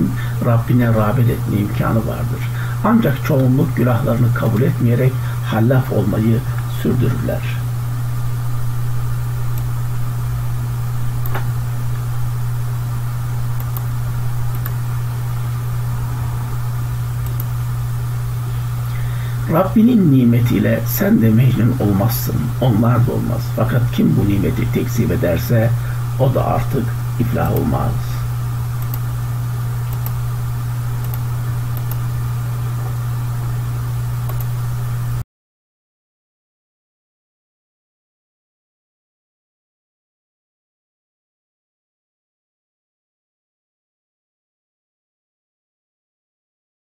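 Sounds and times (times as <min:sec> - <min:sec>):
low electrical hum: 0:00.0 - 0:35.2
faint clicks: 0:17.2 - 0:17.5, 0:31.0 - 0:32.0, 0:34.3 - 0:34.5.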